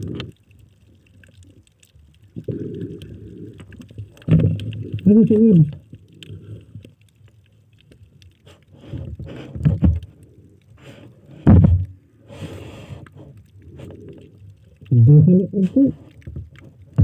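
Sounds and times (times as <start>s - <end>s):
underwater sloshing: 0.0s - 17.0s
loud thump: 11.5s - 11.9s
soft knocks: 11.5s - 11.9s.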